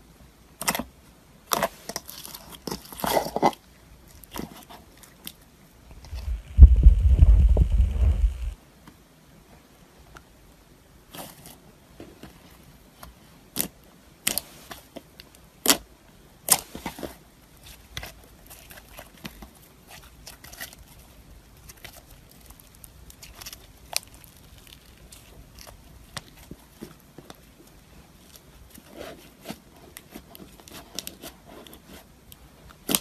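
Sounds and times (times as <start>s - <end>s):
slime popping and crackling: 21.6s - 26.5s.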